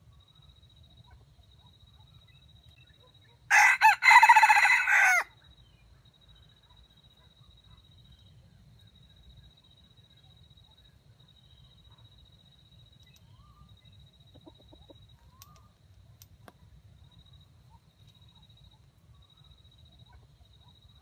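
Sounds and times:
rooster crowing: 0:03.5 - 0:05.3.

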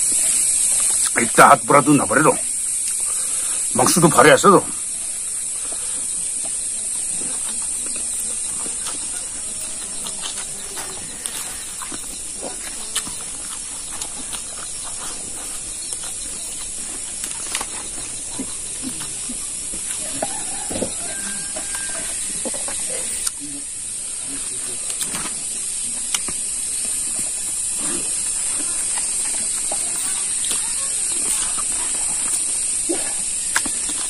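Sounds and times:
steady high-pitched hiss: 0:00.0 - 0:34.0
person chewing and lip-smacking: 0:05.4 - 0:20.2, 0:22.1 - 0:23.4, 0:26.1 - 0:34.0.

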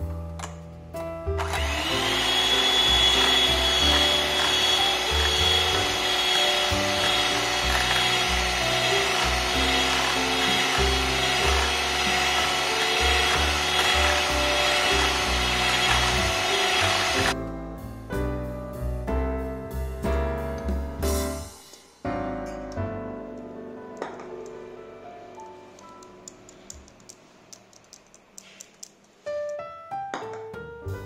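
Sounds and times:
piano music: 0:00.0 - 0:26.7, 0:29.2 - 0:31.0
electric hand mixer whining: 0:01.4 - 0:17.4.

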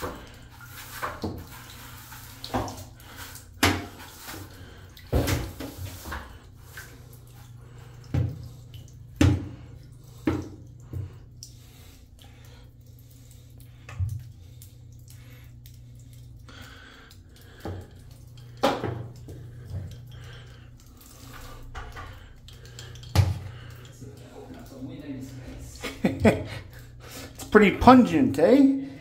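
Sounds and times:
water drips and splashes: 0:00.0 - 0:29.0
steady low hum: 0:04.4 - 0:27.5.

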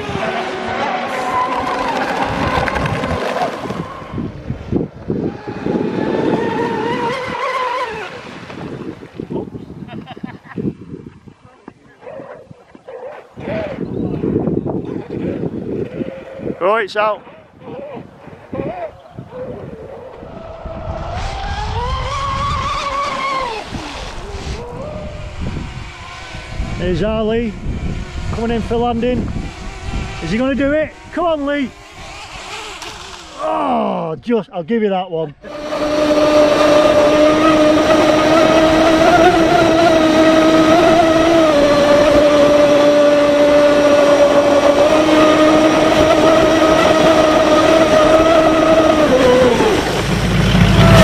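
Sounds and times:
model boat motor whining: 0:00.0 - 0:08.3, 0:18.4 - 0:33.9, 0:35.4 - 0:51.0.

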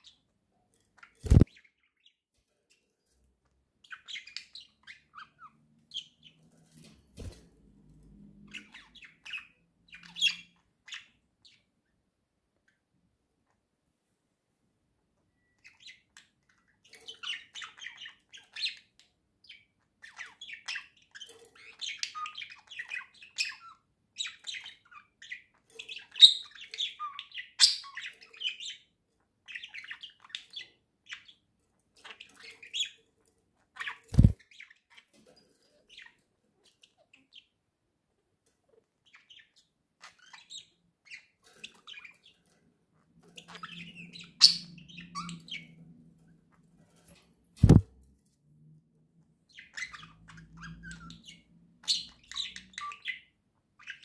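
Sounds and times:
budgerigars chirping: 0:01.0 - 0:02.1, 0:03.8 - 0:06.4, 0:08.4 - 0:11.6, 0:15.4 - 0:31.4, 0:33.7 - 0:35.0, 0:43.3 - 0:45.8, 0:47.6 - 0:47.8, 0:49.5 - 0:54.0.

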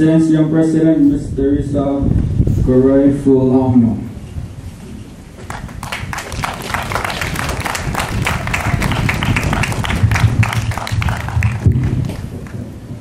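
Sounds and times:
audience applauding: 0:05.4 - 0:12.6.

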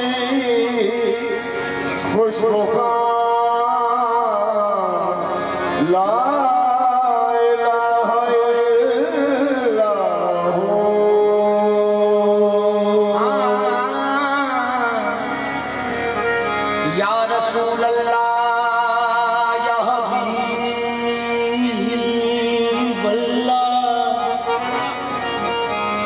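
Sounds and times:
harmonium chords: 0:00.0 - 0:26.0
person singing wordless melody: 0:00.0 - 0:26.0.

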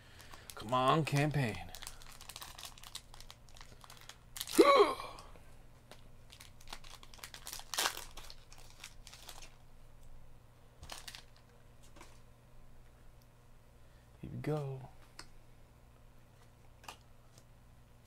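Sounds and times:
foil pack crinkling and tearing: 0:00.1 - 0:04.7, 0:05.9 - 0:09.6, 0:10.8 - 0:11.5.

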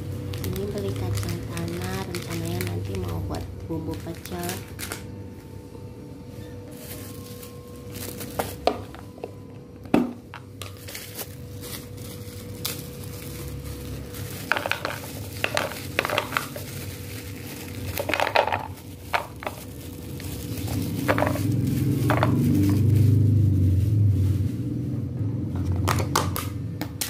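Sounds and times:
plastic bag crinkling: 0:00.0 - 0:05.1, 0:06.6 - 0:09.4, 0:10.0 - 0:24.9
nuts rattling into container: 0:13.1 - 0:22.9.

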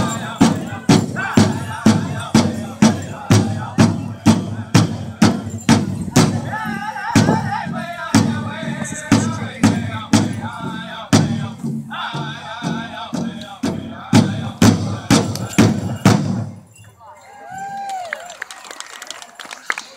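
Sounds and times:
singers chanting in high voices: 0:00.0 - 0:15.6
bass drum beats: 0:00.0 - 0:16.6.

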